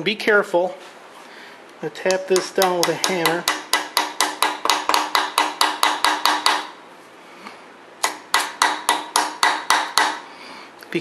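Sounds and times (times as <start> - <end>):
hammer tapping on metal: 2.0 - 6.8, 8.0 - 10.2.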